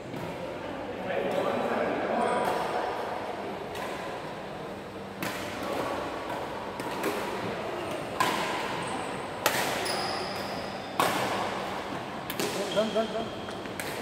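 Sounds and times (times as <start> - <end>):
racquets hitting shuttlecock: 5.2 - 12.8, 13.5 - 14.0.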